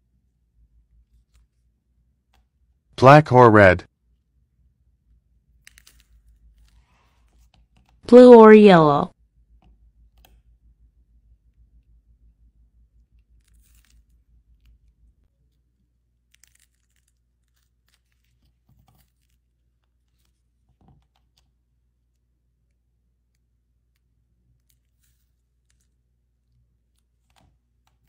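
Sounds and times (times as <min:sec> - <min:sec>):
foil crinkling and tearing: 0:16.3 - 0:18.4.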